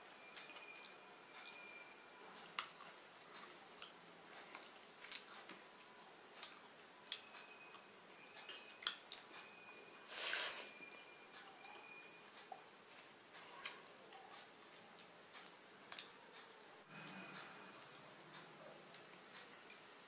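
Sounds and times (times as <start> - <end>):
small wet drips: 0.1 - 9.6, 11.3 - 19.9
soft clicks of eating from bowl: 6.4 - 9.5, 11.4 - 17.5.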